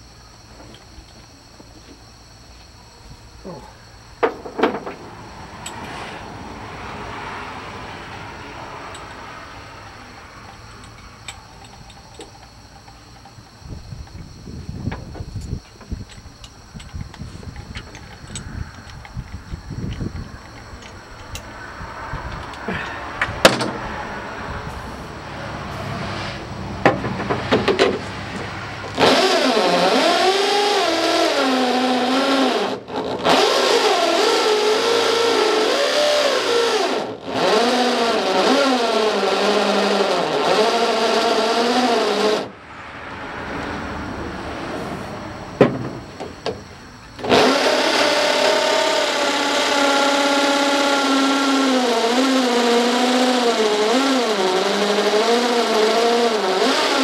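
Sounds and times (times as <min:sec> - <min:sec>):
electric drill drilling sheet metal: 0:27.2 - 0:42.5, 0:47.2 - 0:57.0.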